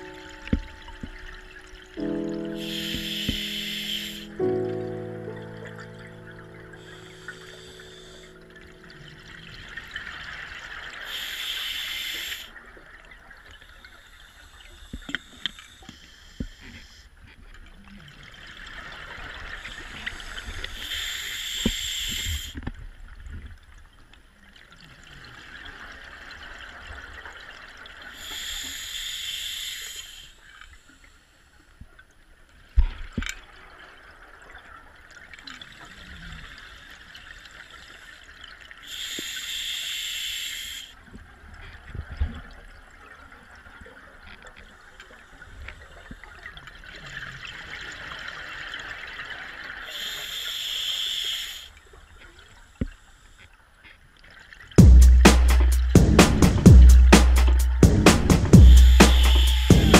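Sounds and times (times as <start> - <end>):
regulator breathing hiss: 2.5 - 4.5, 6.8 - 8.4, 11.0 - 12.6, 13.7 - 17.1, 19.6 - 22.6, 28.1 - 31.4, 38.8 - 41.0, 49.9 - 51.8, 54.8 - 59.9.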